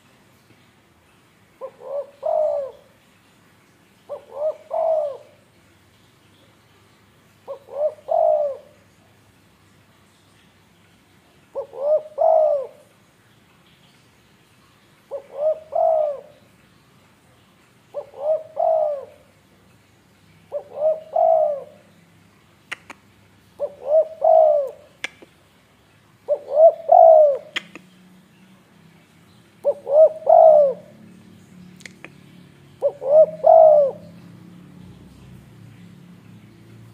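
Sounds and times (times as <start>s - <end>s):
dove cooing: 1.6s - 3.0s, 4.1s - 5.4s, 7.5s - 8.8s, 11.5s - 12.9s, 15.1s - 16.4s, 17.9s - 19.4s, 20.5s - 22.0s, 23.6s - 25.0s, 26.3s - 27.8s, 29.6s - 31.0s, 32.8s - 34.3s.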